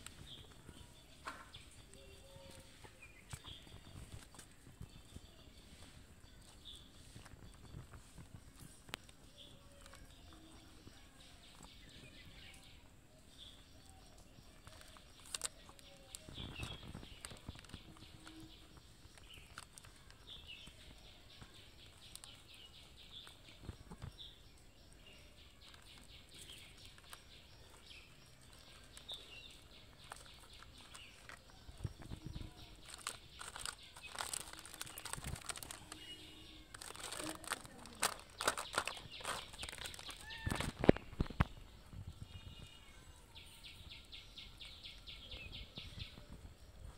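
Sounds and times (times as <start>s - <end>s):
cats chewing and lapping: 0.0s - 41.8s
faint high chirps: 0.0s - 46.9s
plastic packet crinkling: 8.5s - 12.2s, 13.8s - 24.1s, 24.9s - 41.6s.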